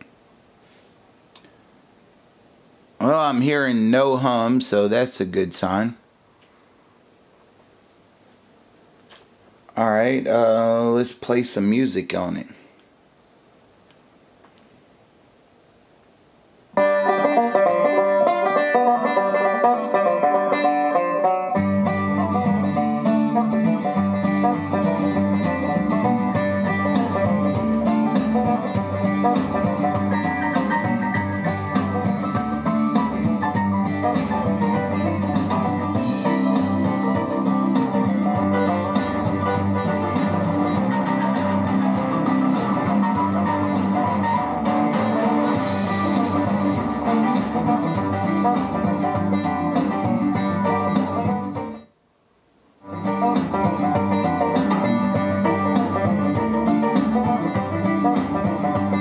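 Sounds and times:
bass: 0:03.0 - 0:06.0, 0:16.8 - 0:51.8, 0:52.8 - 0:59.0
plucked guitar music: 0:16.8 - 0:51.8, 0:52.8 - 0:59.0.

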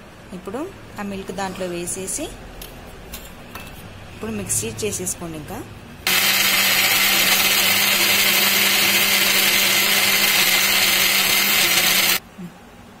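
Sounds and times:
mixer grinder motor whirring: 0:06.1 - 0:12.2.

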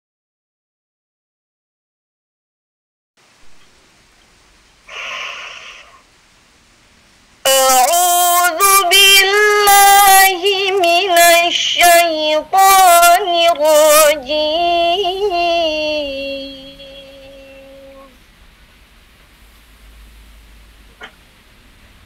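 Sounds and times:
woman chanting melodically: 0:07.5 - 0:18.2.

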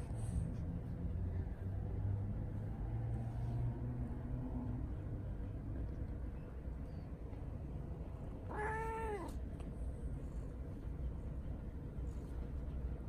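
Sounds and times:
cat meowing: 0:08.4 - 0:09.4.

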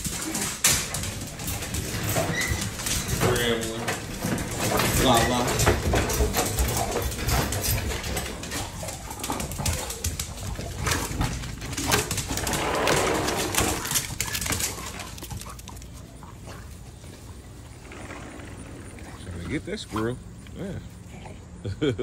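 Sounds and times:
sharp clicks and rattles: 0:00.0 - 0:16.0
dogs making low vocal noises: 0:00.0 - 0:22.0.

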